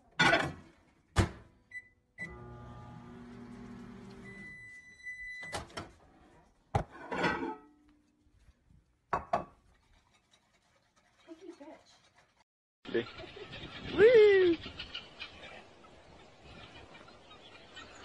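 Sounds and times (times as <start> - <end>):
small appliance motor humming: 2.3 - 4.3.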